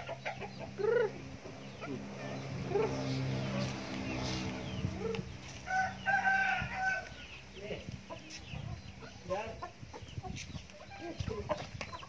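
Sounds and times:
chickens clucking: 0:00.0 - 0:12.0
rooster crowing: 0:05.7 - 0:07.1.

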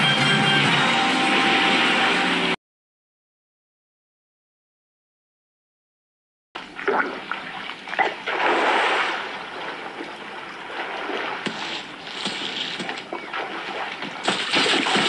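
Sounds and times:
water splashing and sloshing: 0:06.6 - 0:15.0.

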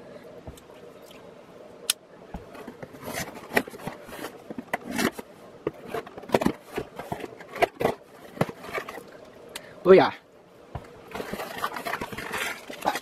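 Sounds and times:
cardboard scraping and rustling: 0:02.4 - 0:09.2, 0:10.8 - 0:13.0.

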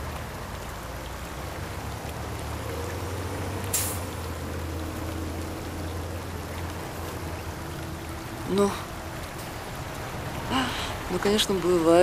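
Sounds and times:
short hiss: 0:03.7 - 0:04.0.

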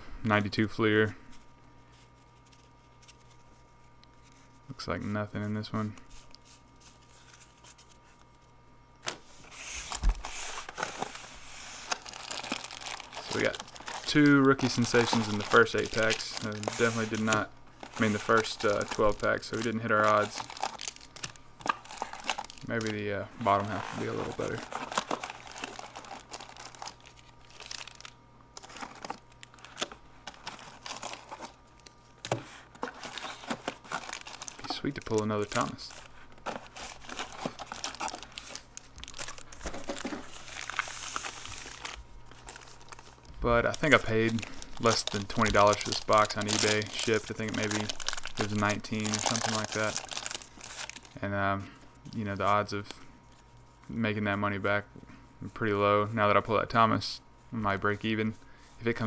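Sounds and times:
handling trading cards: 0:05.9 - 0:51.2
wrappers crinkling: 0:09.1 - 0:51.2.

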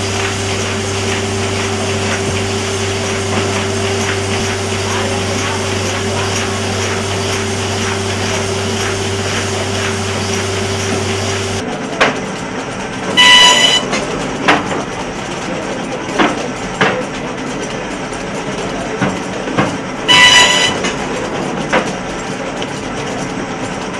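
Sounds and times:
loud buzzer tone: 0:00.0 - 0:11.6, 0:13.2 - 0:14.0, 0:20.1 - 0:21.0
machine hum: 0:00.0 - 0:11.7, 0:13.2 - 0:14.0, 0:20.1 - 0:21.0
book-binding machine clacking: 0:00.0 - 0:23.9.

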